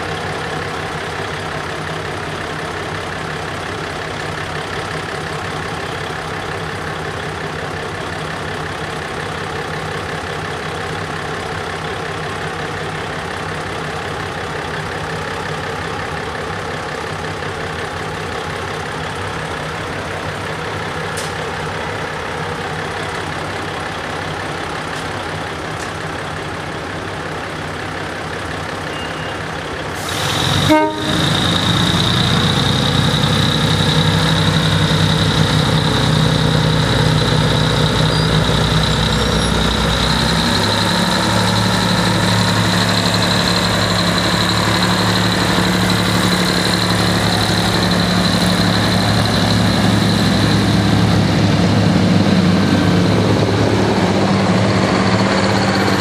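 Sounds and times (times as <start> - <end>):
train engine idling: 0.0 - 56.0
engine high whine: 29.9 - 56.0
train horn toot: 30.6 - 31.4.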